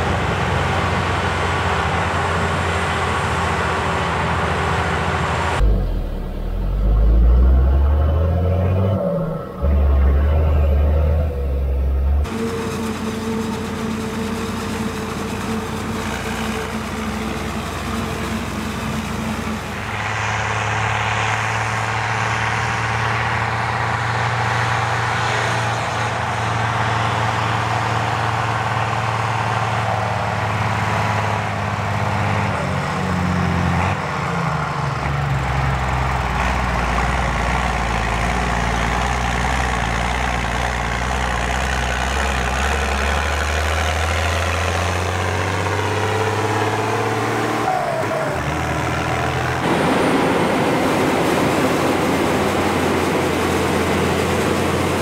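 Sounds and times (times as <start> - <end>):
diesel machinery engine: 0.0 - 55.0.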